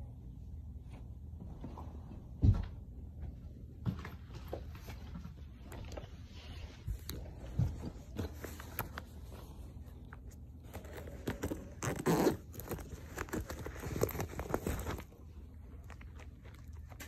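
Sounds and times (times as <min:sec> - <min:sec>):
rustling of bag: 0:05.9 - 0:17.0.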